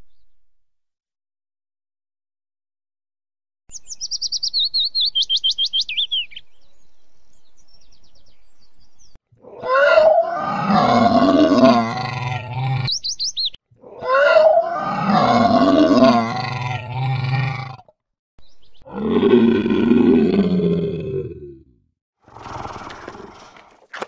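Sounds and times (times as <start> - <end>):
dinosaur roar: 9.4 - 12.9, 13.8 - 18.0, 18.9 - 23.8.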